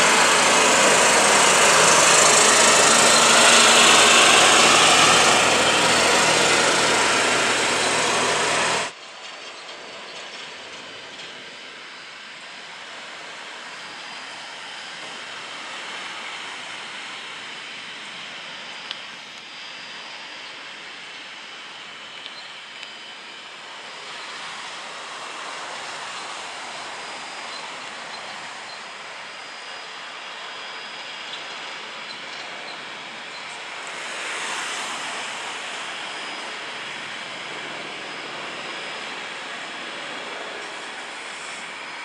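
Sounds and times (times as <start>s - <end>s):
helicopter flying past: 0.0s - 42.0s.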